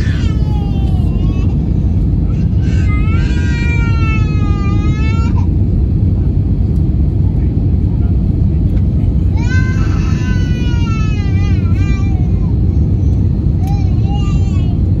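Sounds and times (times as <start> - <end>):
baby crying: 0.0 - 1.7, 2.3 - 5.5, 9.4 - 12.6
low airplane cabin rumble: 0.0 - 15.0.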